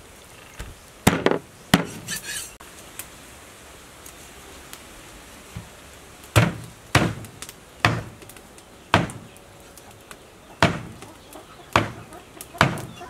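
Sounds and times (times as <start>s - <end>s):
cleaver chopping on wooden block: 6.4s - 8.1s, 9.0s - 9.2s, 10.6s - 11.0s, 11.7s - 12.0s, 12.6s - 12.9s.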